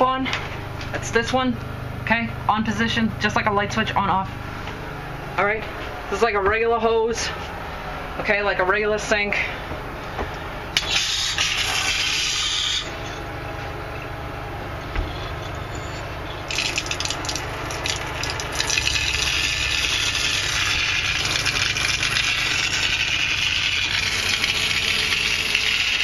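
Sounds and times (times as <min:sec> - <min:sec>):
water pump humming: 0:09.4 - 0:26.0
water spraying into a tub: 0:16.5 - 0:25.6.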